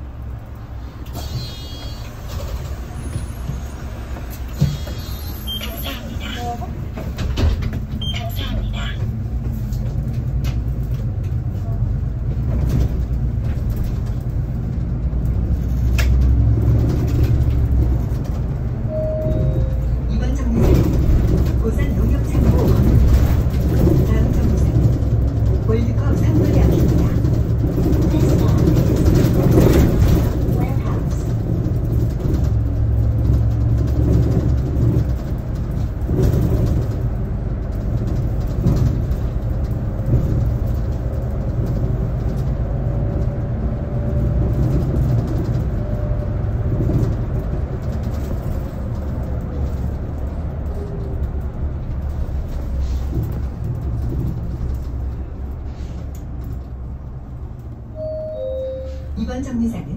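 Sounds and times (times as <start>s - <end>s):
bus engine rumble: 0.0s - 59.9s
road noise: 0.0s - 59.9s.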